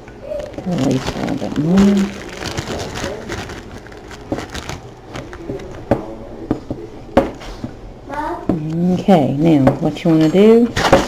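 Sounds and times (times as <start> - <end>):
plastic bag crinkling: 0.2 - 6.3.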